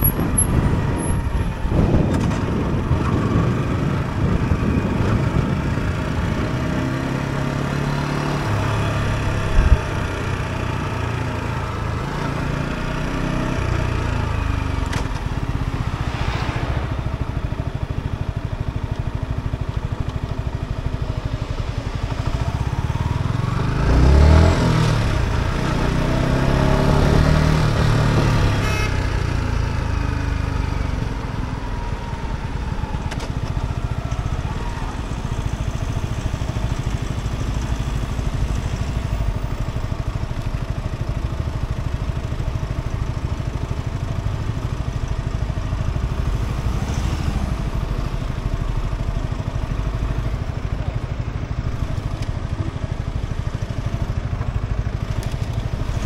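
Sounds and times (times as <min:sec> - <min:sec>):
vehicles passing: 0:00.0 - 0:31.5
motorcycle engine running: 0:00.0 - 0:56.0.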